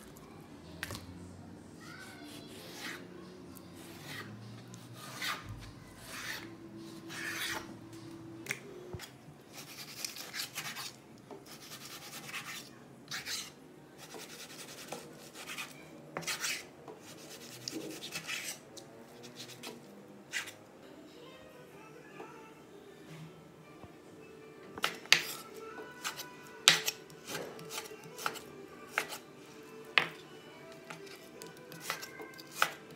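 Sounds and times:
knife slicing meat on cutting board: 9.5 - 18.6, 26.0 - 29.2, 30.9 - 32.8.

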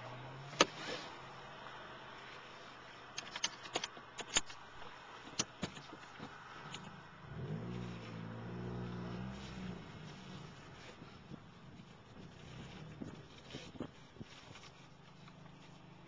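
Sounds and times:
sharp irregular clicks: 3.1 - 4.7
car engine revving: 6.1 - 14.0.

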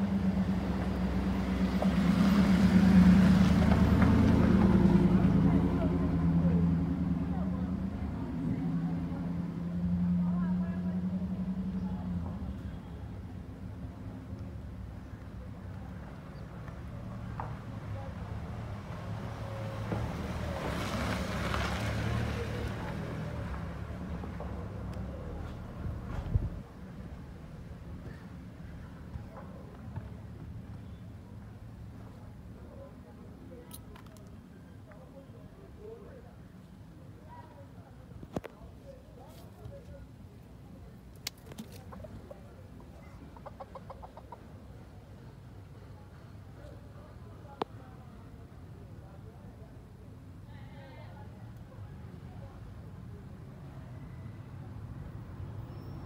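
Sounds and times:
passing vehicle rush: 0.0 - 13.8, 16.8 - 28.0
low engine hum: 0.0 - 35.2
rooster clucking: 41.8 - 44.5.

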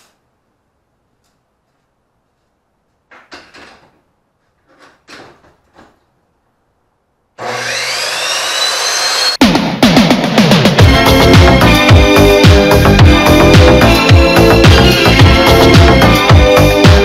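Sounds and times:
miter saw motor whine: 7.4 - 9.4.

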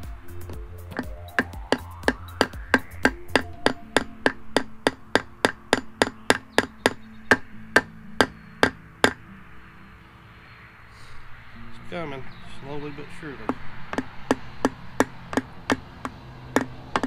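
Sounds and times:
hammer tapping on metal: 0.5 - 9.2, 13.5 - 17.0.

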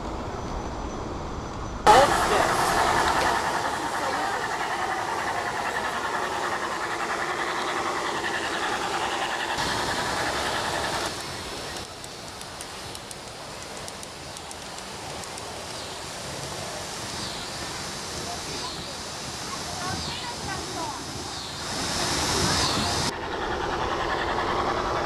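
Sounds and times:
model train rolling: 1.9 - 18.9
light clicks: 11.8 - 15.5.

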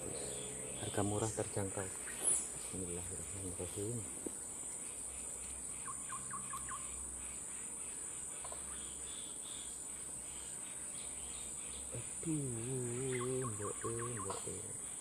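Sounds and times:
bird chirps: 0.0 - 3.8, 4.9 - 15.0
insects chirring: 0.0 - 15.0
man's voice: 12.0 - 14.8.

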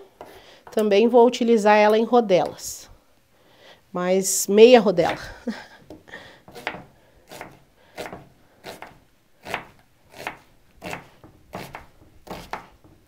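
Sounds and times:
knife slicing onion on wooden board: 6.5 - 13.0.

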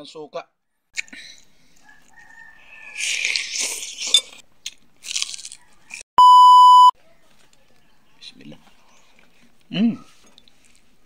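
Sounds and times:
crunching and chewing fried food: 1.0 - 6.0, 10.3 - 11.0
loud electronic beep: 6.2 - 6.9.

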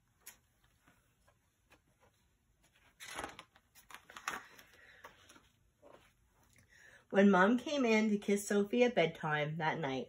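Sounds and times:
book page turning: 0.2 - 6.6
soft paper crinkles and taps: 0.2 - 6.6.

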